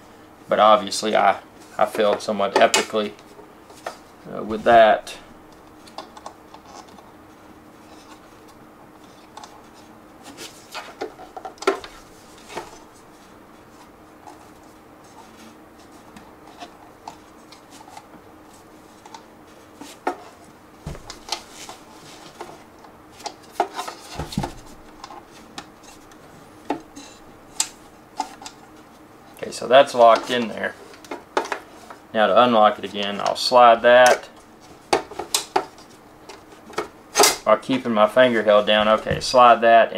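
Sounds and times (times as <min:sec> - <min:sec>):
dull thumps: 0:20.8 - 0:21.4.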